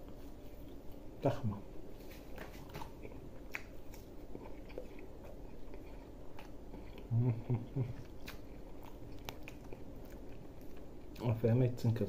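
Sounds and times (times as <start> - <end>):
person chewing food: 1.9 - 11.4.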